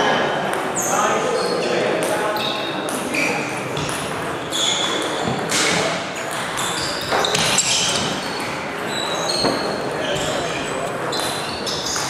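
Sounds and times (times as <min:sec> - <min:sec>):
murmur of voices: 0:00.0 - 0:12.0
table tennis balls clicking: 0:03.6 - 0:12.0.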